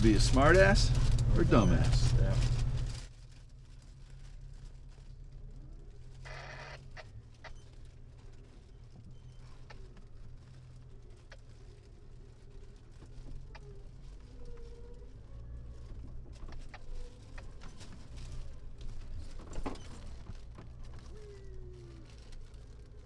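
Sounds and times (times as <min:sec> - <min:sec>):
loud crackle: 0:00.0 - 0:23.0
low engine rumble: 0:00.0 - 0:23.0
short wavering squeaks: 0:01.3 - 0:02.6.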